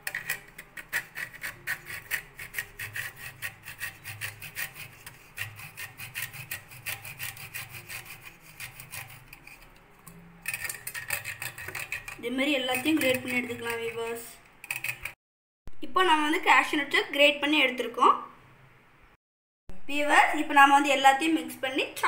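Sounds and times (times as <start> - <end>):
nuts rasping on metal grater: 0.0 - 9.8, 10.4 - 15.2.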